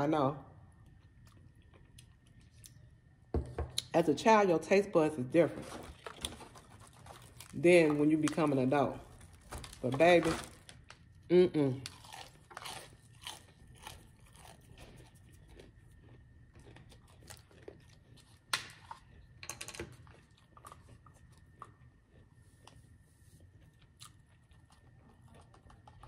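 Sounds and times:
person chewing food: 0:00.7 - 0:03.1, 0:05.9 - 0:07.6, 0:11.8 - 0:26.0.

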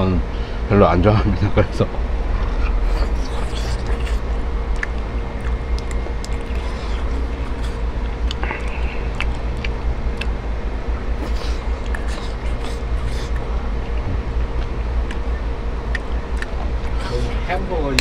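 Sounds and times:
faint steady hum: 0:00.0 - 0:18.0
steady low rumble: 0:00.0 - 0:18.0
person chewing food: 0:02.3 - 0:10.4, 0:11.1 - 0:17.3.

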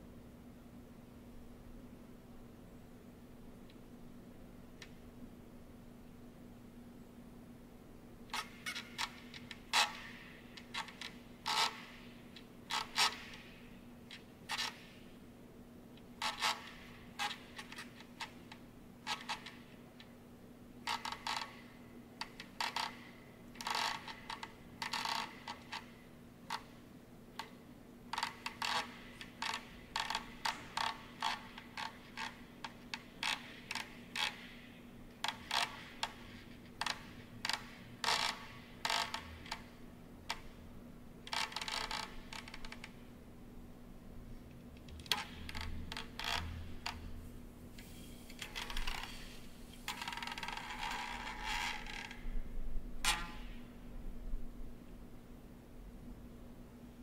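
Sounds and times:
steady low hum: 0:00.0 - 0:57.0
mechanical clicks and creaks: 0:27.4 - 0:34.6, 0:35.2 - 0:39.7, 0:41.2 - 0:43.0, 0:44.8 - 0:47.2, 0:47.8 - 0:52.4.

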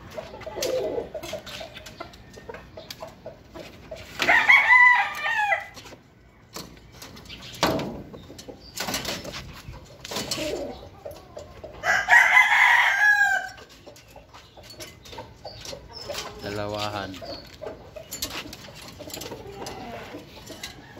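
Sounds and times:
rooster crowing: 0:04.2 - 0:05.8, 0:11.8 - 0:13.6.

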